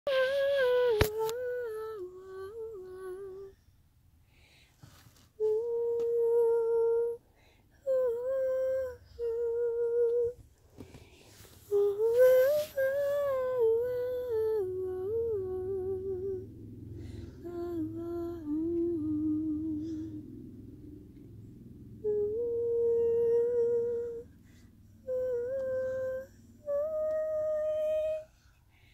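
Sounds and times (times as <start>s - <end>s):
woman humming a lullaby: 0.1s - 3.7s, 5.4s - 10.4s, 11.6s - 16.5s, 17.2s - 20.3s, 22.0s - 24.4s, 25.0s - 28.4s.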